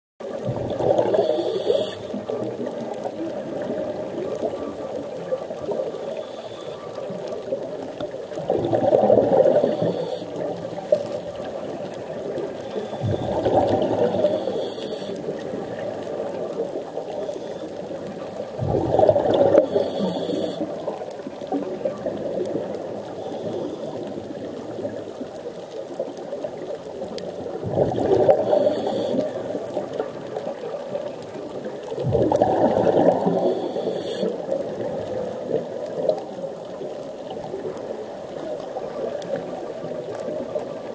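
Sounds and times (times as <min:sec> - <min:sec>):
exhaled bubbles rumbling: 0:00.2 - 0:40.9
underwater wash: 0:00.2 - 0:40.9
regulator hiss: 0:01.0 - 0:02.2, 0:05.9 - 0:06.8, 0:09.4 - 0:10.4, 0:12.6 - 0:13.4, 0:14.0 - 0:15.3, 0:19.5 - 0:20.7, 0:23.2 - 0:24.0, 0:28.3 - 0:29.3, 0:33.2 - 0:34.4.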